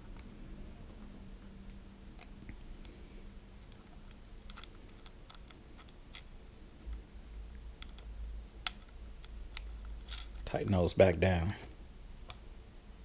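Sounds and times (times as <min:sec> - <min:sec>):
small metal nuts clicking: 0:07.8 - 0:10.4.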